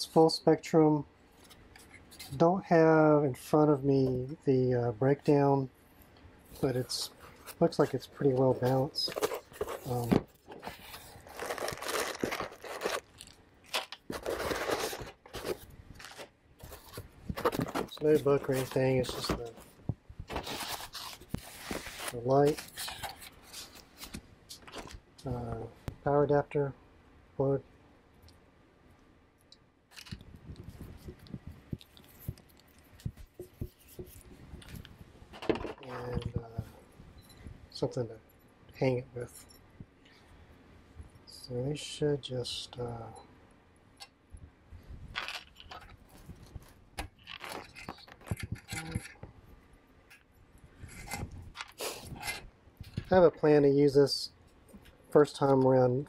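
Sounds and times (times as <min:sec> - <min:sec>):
plastic wrapping crackling: 0:08.6 - 0:19.6, 0:45.2 - 0:46.0, 0:47.1 - 0:49.2.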